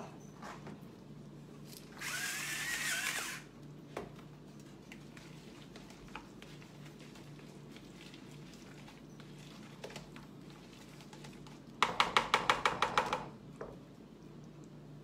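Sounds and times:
spice grinder grinding: 0:01.9 - 0:03.5.

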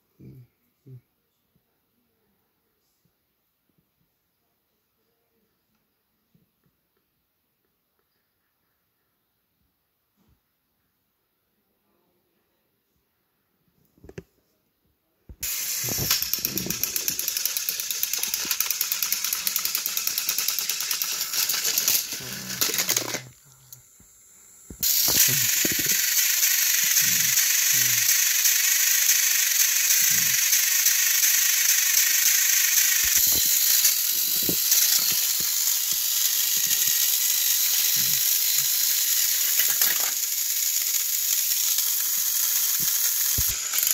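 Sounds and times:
gears and wheels rattling: 0:15.4 - 0:23.3, 0:24.8 - 0:43.9
toy train motors whirring: 0:15.4 - 0:43.9.

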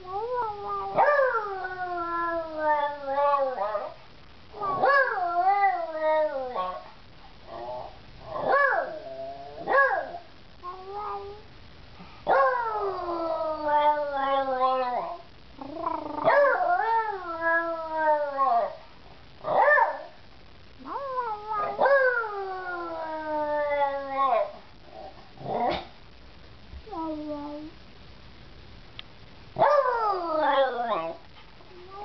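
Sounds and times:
dog howling and yelping: 0:00.1 - 0:04.0, 0:04.6 - 0:06.9, 0:12.3 - 0:18.8, 0:20.8 - 0:24.6, 0:29.6 - 0:31.2.

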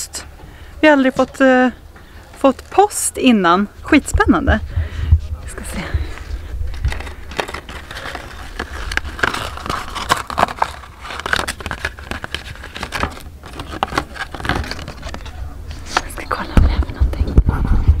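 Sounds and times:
steady low rumble: 0:03.2 - 0:13.5
paper crinkling: 0:05.8 - 0:16.2.

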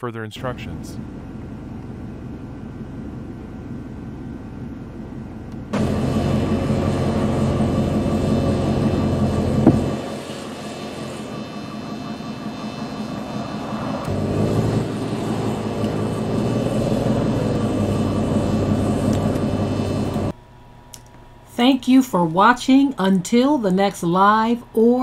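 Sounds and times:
car engine revving: 0:00.7 - 0:20.3.

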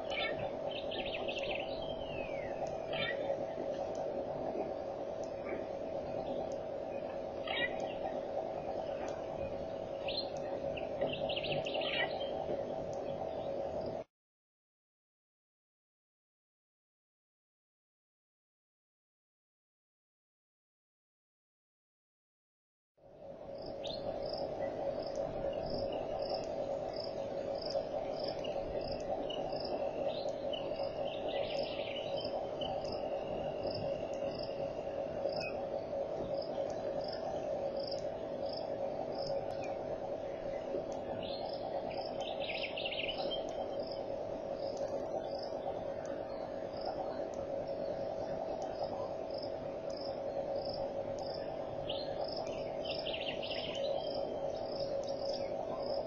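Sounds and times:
short bird calls: 0:00.0 - 0:03.3, 0:07.4 - 0:08.0
insects chorus: 0:23.4 - 0:56.0.

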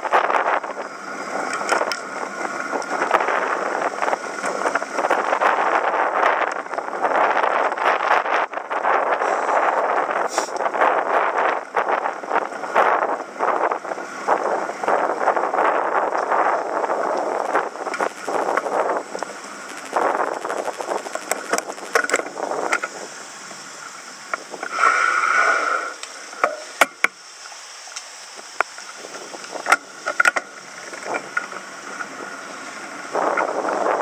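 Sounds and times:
wind buffeting microphone: 0:00.0 - 0:23.7, 0:28.9 - 0:34.0
sharp clicks: 0:17.9 - 0:22.9.

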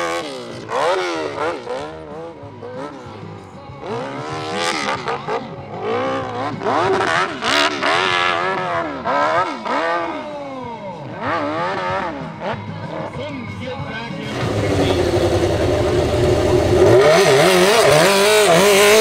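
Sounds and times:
motorcycle engine revving: 0:14.2 - 0:19.0.

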